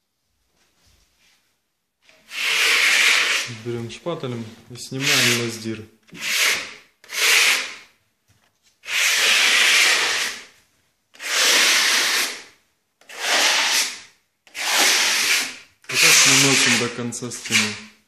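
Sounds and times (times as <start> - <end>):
trowel scraping plaster wall: 2.0 - 3.7, 4.9 - 7.9, 8.8 - 18.0.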